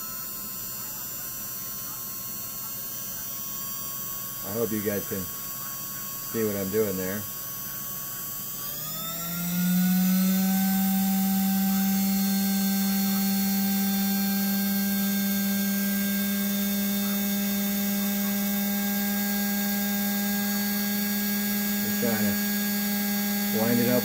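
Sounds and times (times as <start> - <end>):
sewing machine motor humming: 8.6 - 24.0.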